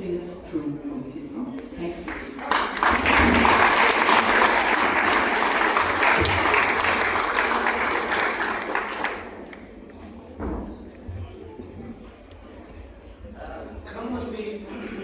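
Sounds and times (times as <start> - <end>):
audience applauding: 2.1 - 9.8.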